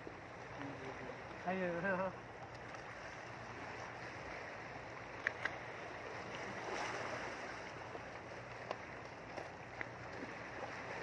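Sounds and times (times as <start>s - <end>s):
sea waves: 0.0s - 11.0s
wind: 0.0s - 11.0s
fishing rod clicks: 5.2s - 5.6s.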